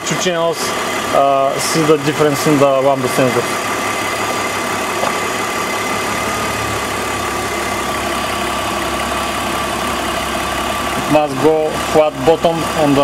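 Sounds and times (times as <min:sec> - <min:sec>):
petrol engine idling: 0:00.0 - 0:13.0
high whine: 0:03.4 - 0:11.2.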